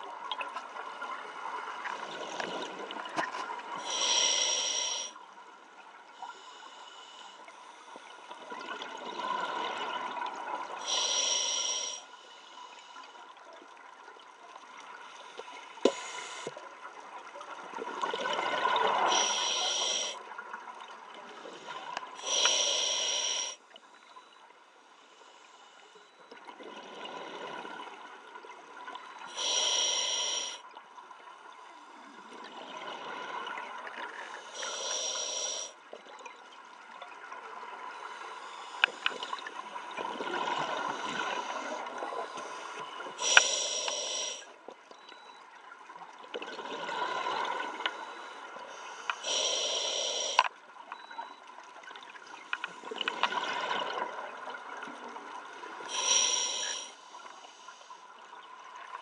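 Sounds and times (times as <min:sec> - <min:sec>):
regulator inhale hiss: 0:03.8 - 0:05.2, 0:06.2 - 0:08.2, 0:10.8 - 0:13.2, 0:15.8 - 0:16.6, 0:19.0 - 0:20.2, 0:21.6 - 0:23.6, 0:29.3 - 0:30.6, 0:34.3 - 0:35.8, 0:42.4 - 0:44.5, 0:47.9 - 0:50.5, 0:55.9 - 0:58.0.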